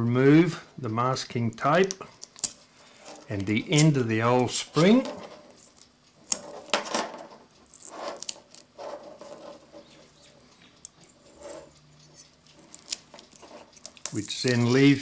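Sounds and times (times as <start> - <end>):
tape rustling and crinkling: 2.0 - 15.0.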